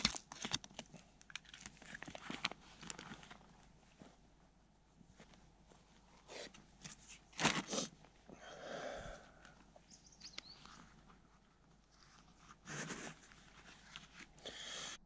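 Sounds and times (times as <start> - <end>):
rustling: 0.0 - 8.3, 9.3 - 14.4
bird chirp: 9.8 - 10.9.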